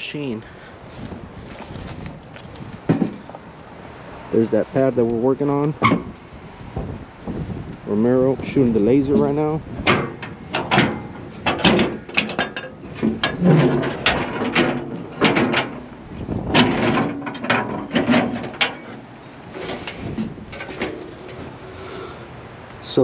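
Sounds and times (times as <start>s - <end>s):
metal hood clanking: 5.8s - 6.2s, 8.6s - 21.7s.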